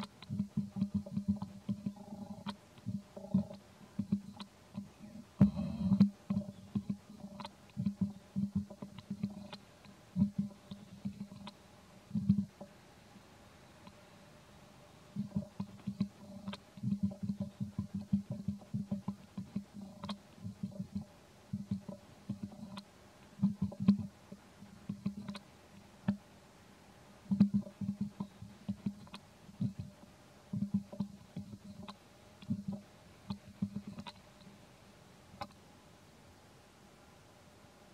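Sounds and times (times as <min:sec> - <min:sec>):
baby monkey suckling clicks: 0:00.0 - 0:11.6, 0:15.2 - 0:24.1, 0:35.4 - 0:35.6.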